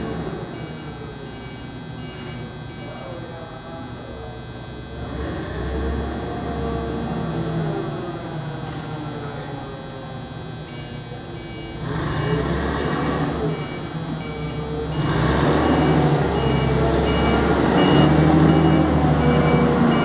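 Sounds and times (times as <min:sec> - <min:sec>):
forklift engine revving: 0:00.0 - 0:02.8, 0:04.9 - 0:08.6, 0:11.2 - 0:20.0.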